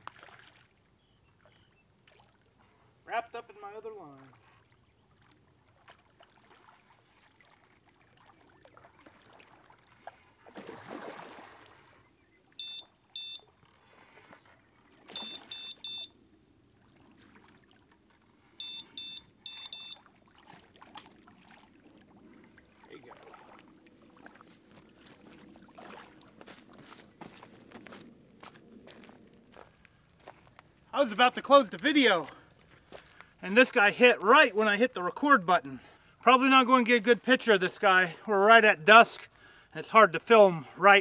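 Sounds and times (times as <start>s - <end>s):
water splash: 0.0s - 0.8s, 4.2s - 12.0s, 13.9s - 15.8s, 19.9s - 27.0s
faint water noise: 0.0s - 41.0s
electronic bite alarm beeping: 12.6s - 13.5s, 15.1s - 16.2s, 18.6s - 20.0s.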